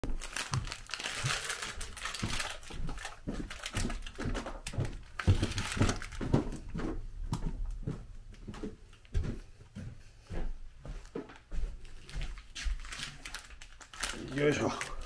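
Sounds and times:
plastic bag crinkling: 0.0s - 6.8s, 11.8s - 15.0s
footsteps on wooden stairs: 0.1s - 13.0s.

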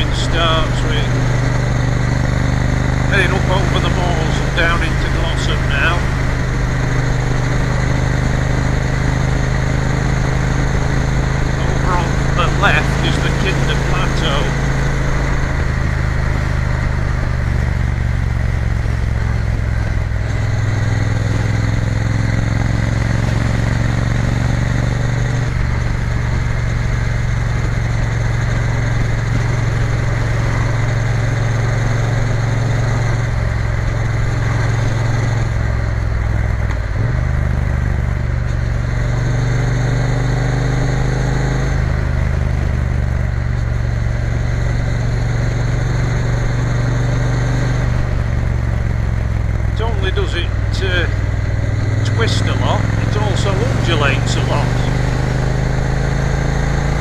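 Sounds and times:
steady rush of noise: 0.0s - 20.6s, 41.6s - 55.3s
motorcycle engine running: 0.0s - 57.0s.

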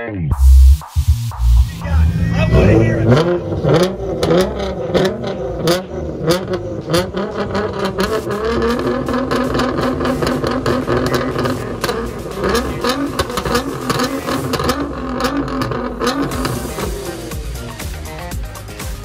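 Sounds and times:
car engine revving on limiter: 0.4s - 18.2s
exhaust pops and crackles: 2.6s - 17.6s.

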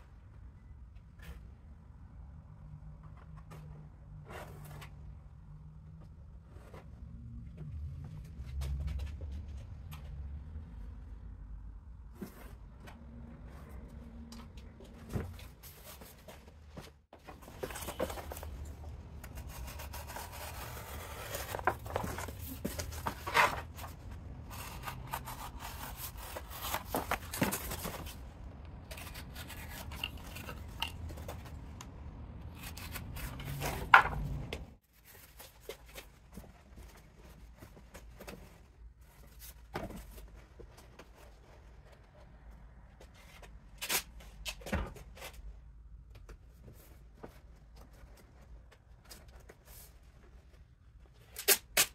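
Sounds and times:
cardboard rubbing and scraping: 17.2s - 28.3s.

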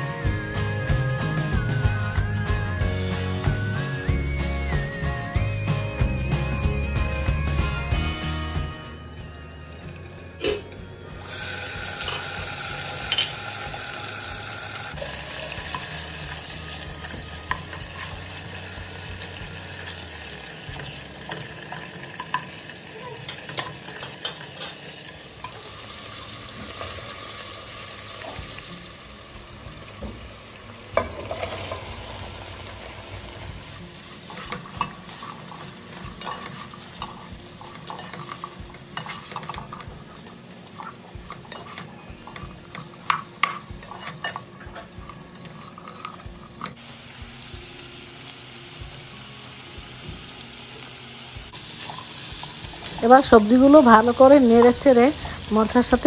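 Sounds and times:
food sizzling in hot oil: 11.2s - 56.0s
spatula scraping a pot: 40.8s - 46.8s.

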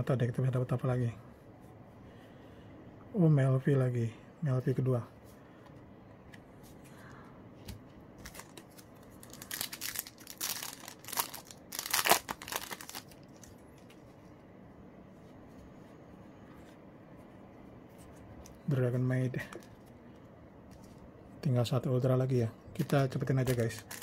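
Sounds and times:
foil pack crinkling and tearing: 8.2s - 13.6s, 22.8s - 24.0s.

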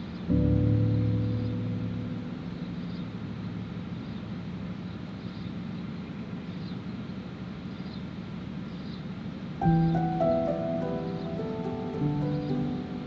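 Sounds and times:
generators droning: 0.0s - 13.0s.

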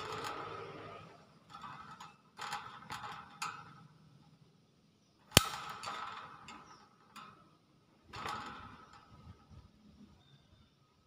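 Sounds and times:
loud sharp snap: 5.3s - 5.8s.

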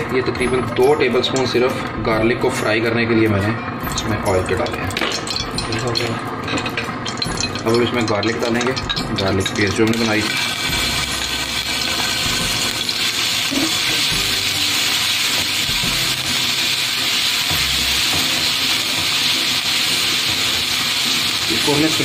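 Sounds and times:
garlic sizzling in hot oil: 9.0s - 22.0s.

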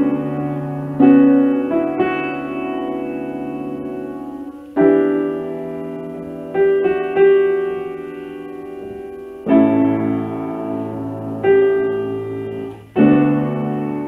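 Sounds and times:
piano playing slow chords: 0.0s - 14.0s.

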